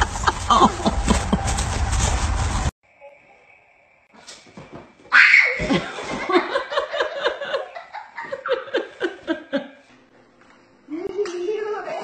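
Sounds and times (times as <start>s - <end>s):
person laughing: 0.0s - 1.6s.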